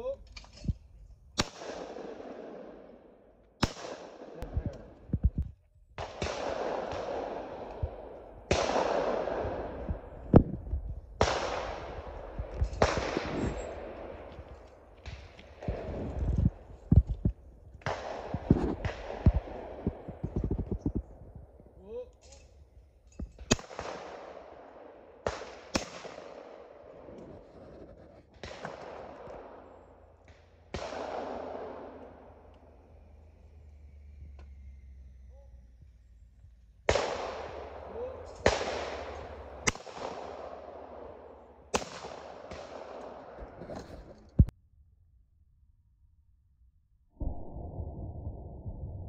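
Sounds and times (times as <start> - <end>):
shotgun shots with rolling echo: 1.3 - 5.0, 6.0 - 21.6, 23.3 - 33.5, 36.7 - 44.5.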